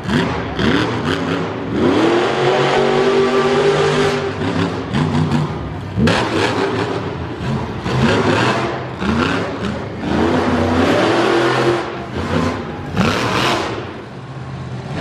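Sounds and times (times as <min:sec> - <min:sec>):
truck engine revving hard: 0:00.0 - 0:15.0.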